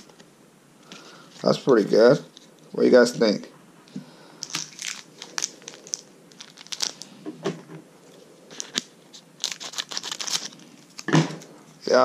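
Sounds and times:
foil wrapper crinkling: 4.4s - 7.2s, 8.5s - 11.5s.

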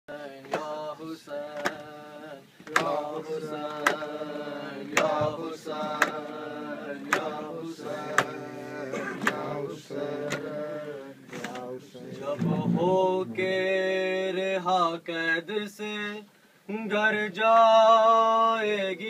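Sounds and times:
men chanting together: 0.1s - 15.8s
hand slaps on chest: 1.6s - 1.8s.

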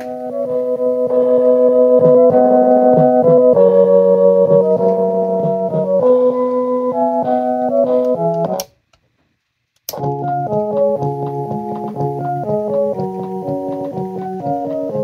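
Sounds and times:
electronic carousel music: 0.0s - 8.6s, 10.0s - 15.0s.

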